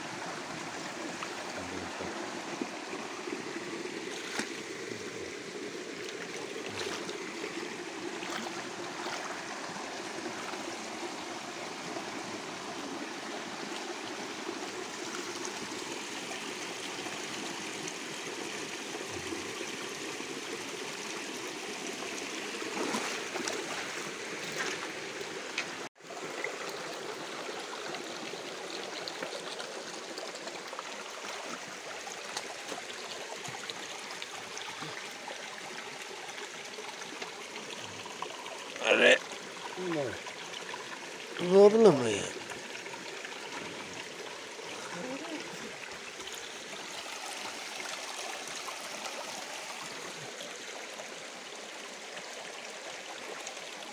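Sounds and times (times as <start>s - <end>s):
stream trickling over rocks: 0.0s - 53.9s
person wading: 6.0s - 9.7s, 22.6s - 24.9s
net splashing through water: 22.7s - 24.8s.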